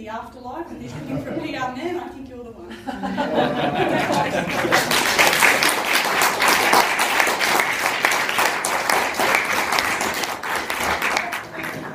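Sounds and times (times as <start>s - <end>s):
audience applauding: 3.3s - 11.9s.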